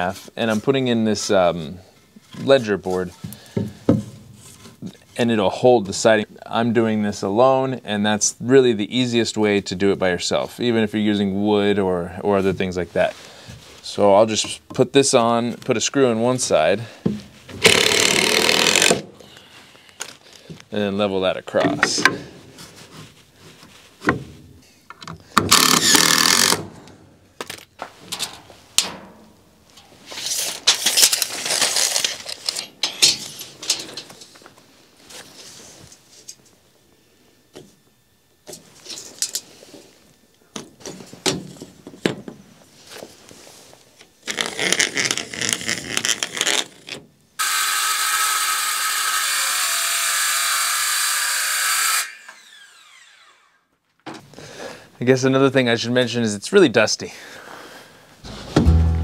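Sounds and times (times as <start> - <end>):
scraping and handling wood: 21.5 - 26.6
brief power tool runs: 25.5 - 26.6, 47.4 - 49.2, 51.8 - 53.6
circular saw cutting board: 47.4 - 53.6, 58.3 - 59.0.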